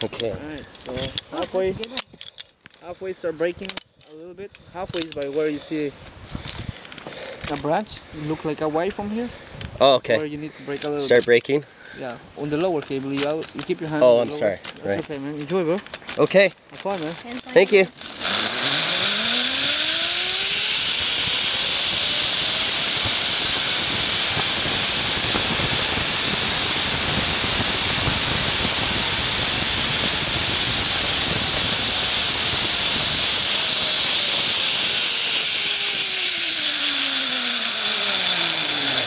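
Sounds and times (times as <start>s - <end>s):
rushing hiss: 17.7s - 39.0s
zipline pulleys whining: 17.8s - 39.0s.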